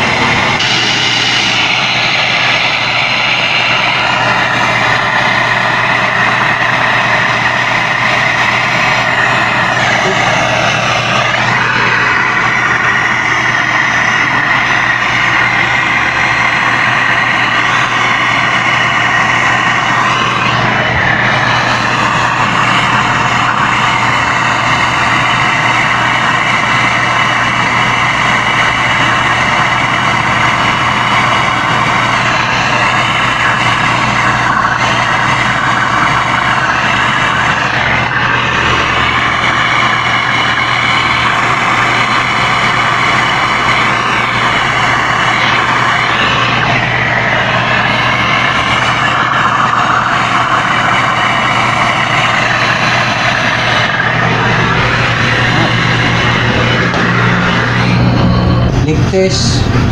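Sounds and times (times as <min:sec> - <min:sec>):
gas torch flame hissing: 0:00.0 - 0:58.2
low hum: 0:00.0 - 0:59.9.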